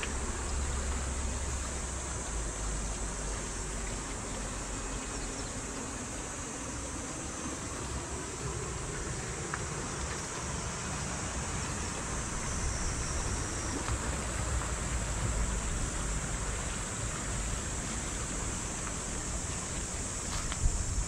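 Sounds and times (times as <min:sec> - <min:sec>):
river rushing over stones: 0:00.0 - 0:21.0
wind buffeting microphone: 0:07.4 - 0:21.0.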